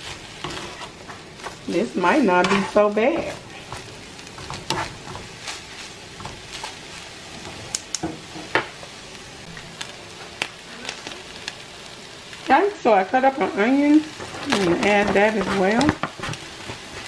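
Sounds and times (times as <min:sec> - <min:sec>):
meat sizzling in a frying pan: 0:00.0 - 0:17.0
spatula clicking and scraping: 0:00.1 - 0:08.5, 0:14.1 - 0:17.0.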